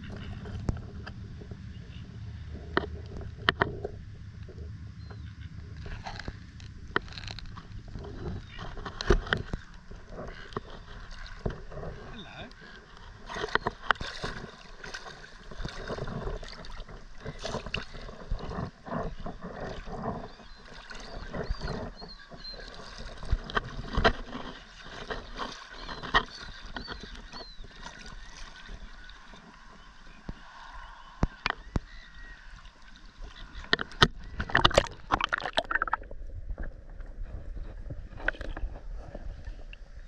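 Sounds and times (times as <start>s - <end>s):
muffled underwater sound: 0.0s - 40.0s
seawater sloshing and lapping: 0.0s - 40.0s
water splashes and knocks: 6.2s - 30.4s, 32.7s - 36.7s.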